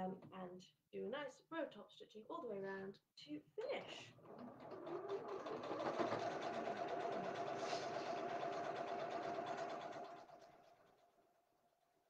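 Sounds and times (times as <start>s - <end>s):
electric sewing machine running: 4.1s - 11.0s.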